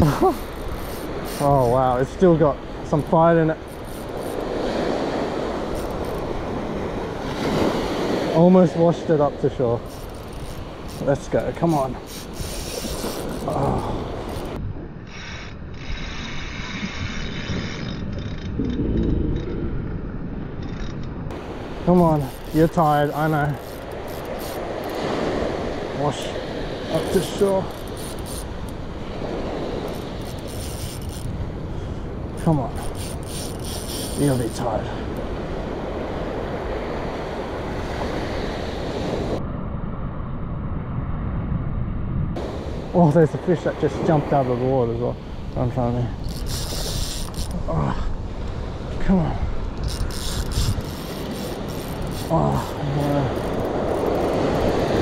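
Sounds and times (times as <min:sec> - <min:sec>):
fishing reel cranking rasp: 0:00.0 - 0:02.0, 0:02.9 - 0:04.6, 0:05.6 - 0:06.4, 0:09.7 - 0:18.7, 0:21.9 - 0:25.2, 0:27.0 - 0:28.8, 0:29.8 - 0:31.4, 0:32.3 - 0:35.2, 0:46.2 - 0:47.7, 0:49.8 - 0:55.0
surf wash: 0:00.0 - 0:14.6, 0:21.3 - 0:39.4, 0:42.4 - 0:55.0
wind noise: 0:00.0 - 0:55.0.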